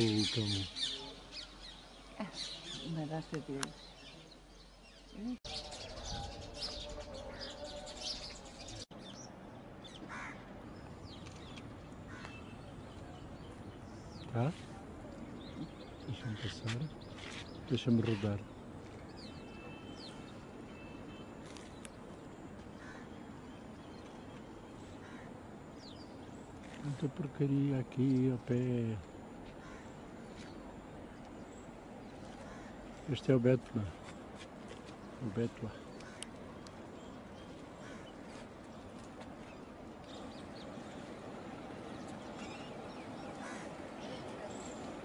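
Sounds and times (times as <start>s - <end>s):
steady background hiss: 21.8s - 45.0s.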